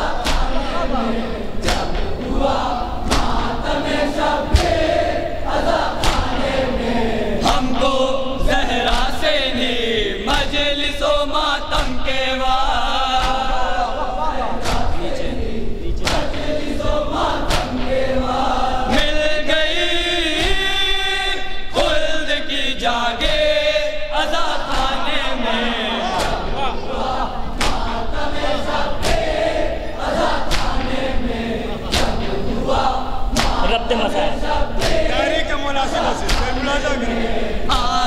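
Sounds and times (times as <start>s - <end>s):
men chanting in chorus: 0.0s - 38.0s
hands slapping chests: 0.2s - 0.6s, 1.6s - 2.2s, 3.0s - 3.5s, 4.5s - 4.9s, 5.8s - 6.5s, 14.6s - 15.2s, 16.0s - 16.6s, 17.4s - 18.0s, 26.1s - 26.5s, 27.6s - 29.4s, 30.2s - 31.0s, 31.9s - 32.5s, 33.3s - 33.7s, 34.8s - 35.2s, 36.2s - 36.6s.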